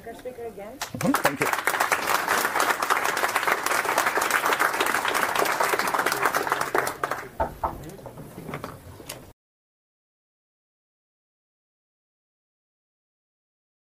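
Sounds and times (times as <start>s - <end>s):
audience applauding: 0.8s - 7.4s.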